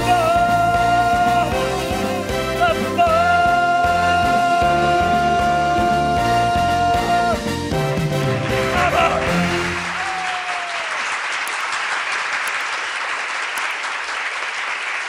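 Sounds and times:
applause: 8.0 - 15.0.

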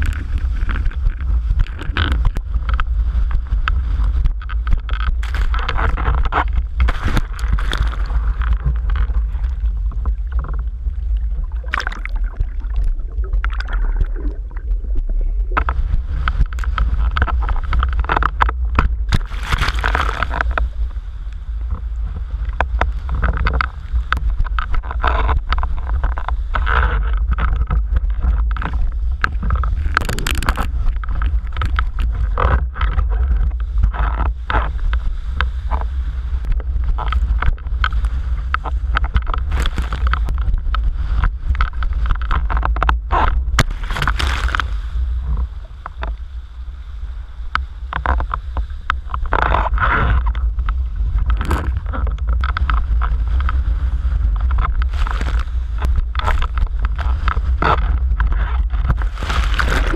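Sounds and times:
water splashing against board: 0.0 - 20.9
wind buffeting microphone: 0.0 - 59.9.

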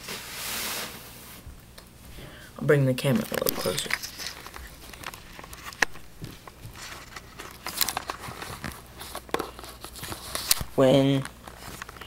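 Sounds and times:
camera handling rustling: 3.2 - 10.7.

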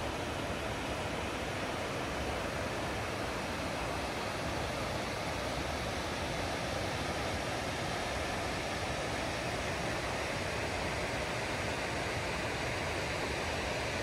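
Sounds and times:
river rushing over rocks: 0.0 - 14.0.

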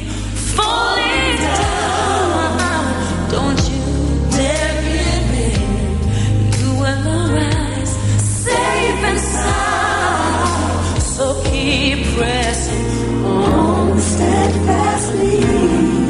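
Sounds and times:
band bass and keys: 0.0 - 16.0
woman singing pop ballad: 0.0 - 16.0.

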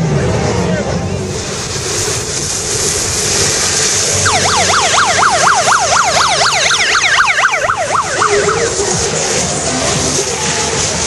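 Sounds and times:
vehicles passing on wet road: 0.0 - 11.0
siren yelping: 4.1 - 9.0.

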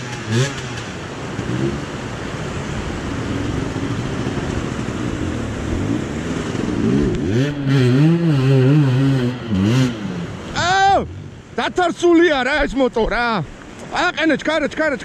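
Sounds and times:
motorcycle engine revving: 0.0 - 11.3
river rushing over rocks: 0.0 - 15.0.

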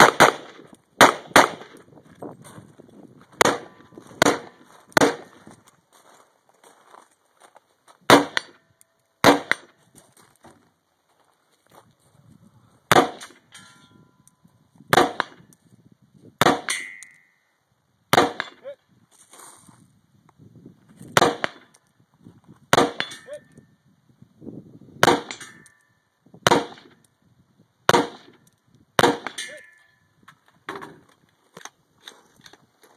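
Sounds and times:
rifle shots: 0.0 - 1.8, 3.4 - 5.3, 8.1 - 8.6, 9.2 - 9.7, 12.9 - 13.4, 14.9 - 15.4, 18.1 - 18.6, 21.2 - 21.7, 22.7 - 23.2, 26.4 - 26.9, 27.9 - 28.4, 29.0 - 29.6
steel target ringing: 13.0 - 14.3, 16.6 - 17.4, 22.9 - 23.5, 25.1 - 26.0, 29.0 - 30.1.

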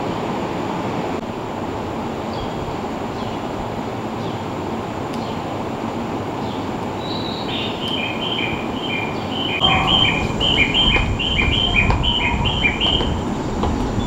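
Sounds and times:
train rumbling: 0.0 - 14.0
high two-note chirp: 9.6 - 13.1.

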